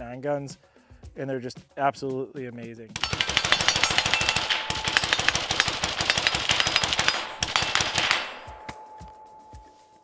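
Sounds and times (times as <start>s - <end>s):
rifle firing rapid bursts: 3.0s - 8.7s
gunshot echo: 3.0s - 9.1s.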